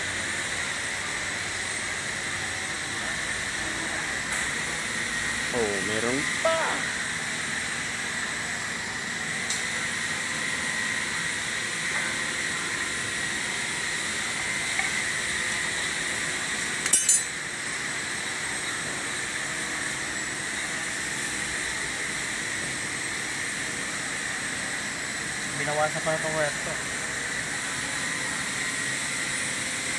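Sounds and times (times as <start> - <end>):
workshop background hiss: 0.0 - 29.9
metallic clinks of tools: 16.8 - 17.3.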